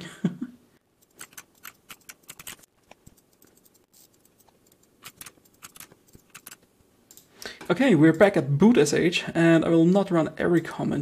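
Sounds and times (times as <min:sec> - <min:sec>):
keyboard key clicks: 0:01.0 - 0:03.8, 0:05.0 - 0:07.2.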